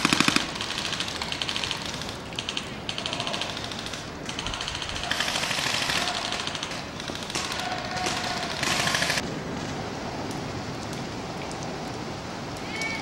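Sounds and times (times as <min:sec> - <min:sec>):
airsoft guns firing automatic bursts: 0:00.0 - 0:09.2.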